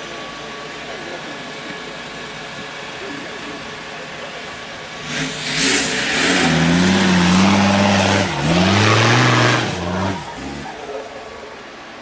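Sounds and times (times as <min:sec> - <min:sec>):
engine revving hard: 0:05.0 - 0:10.9.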